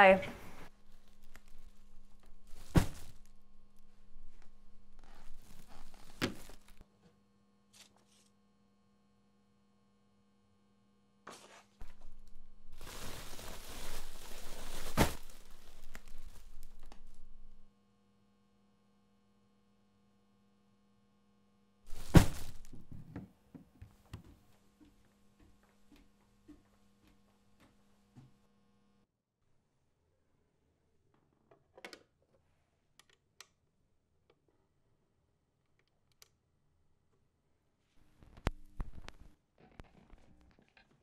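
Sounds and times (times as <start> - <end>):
tissue paper and gift bag rustling: 5.1 - 6.8, 11.4 - 17.5, 21.9 - 22.8.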